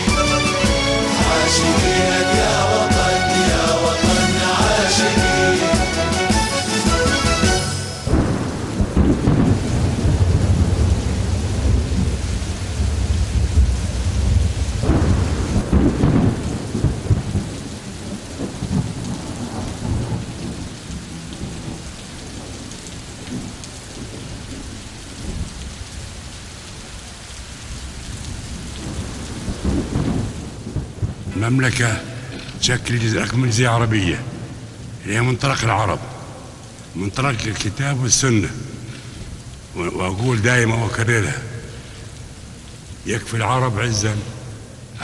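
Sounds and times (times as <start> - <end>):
heavy rain: 0.0 - 45.0
sharp thunder crack: 6.2 - 12.2, 12.8 - 17.6
deep rolling thunder: 8.0 - 24.6, 28.1 - 31.4.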